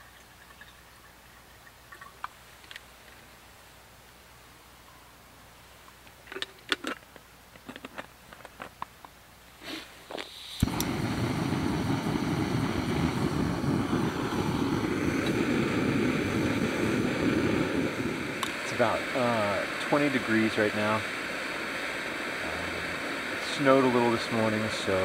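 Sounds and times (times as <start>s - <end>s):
gas burner hissing: 9.6s - 25.0s
gas stove igniter click: 10.6s - 11.5s.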